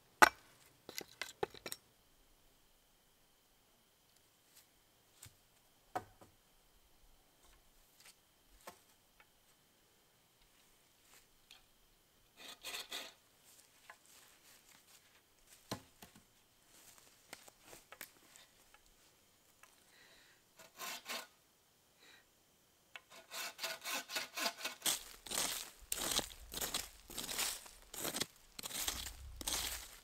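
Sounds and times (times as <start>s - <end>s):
bucksaw cutting wooden pole: 23.0s - 29.7s.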